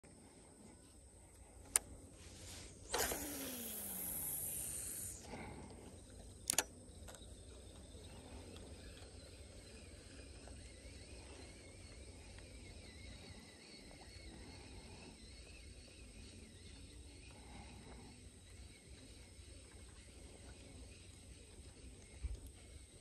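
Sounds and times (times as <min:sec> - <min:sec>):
fishing line hissing off reel: 0:01.7 - 0:05.6, 0:07.4 - 0:22.2
reel handle turning: 0:02.9 - 0:04.8
reel double click: 0:02.9 - 0:05.2, 0:06.5 - 0:07.2.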